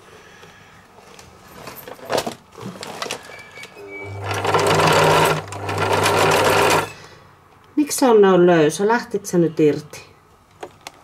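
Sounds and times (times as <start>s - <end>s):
sewing machine stitching: 1.6s - 7.0s.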